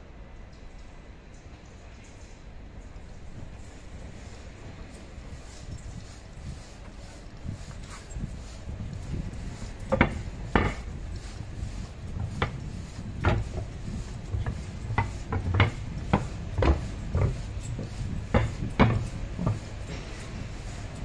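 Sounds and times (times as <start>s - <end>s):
electric train rumbling: 3.4s - 21.0s
sharp clunks and knocks: 9.1s - 11.4s, 12.1s - 20.2s.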